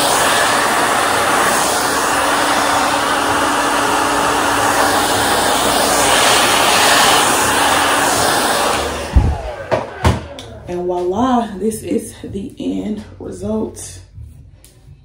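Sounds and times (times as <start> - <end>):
hair dryer blowing air: 0.0 - 10.5.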